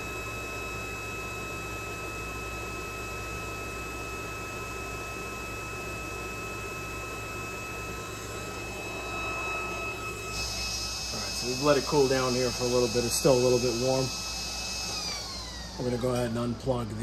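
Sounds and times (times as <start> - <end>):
fan-like heater noise: 6.2 - 17.0
high-pitched whine: 6.3 - 17.0.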